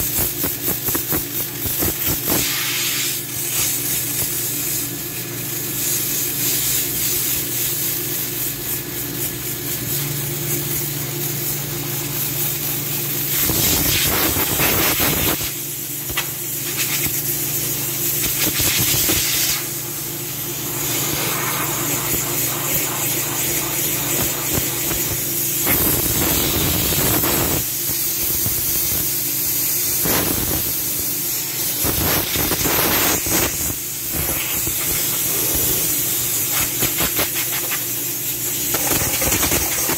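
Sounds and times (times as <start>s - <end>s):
compressed air blasts hissing: 0.0s - 9.7s, 13.2s - 39.9s
low machine hum: 19.6s - 26.2s.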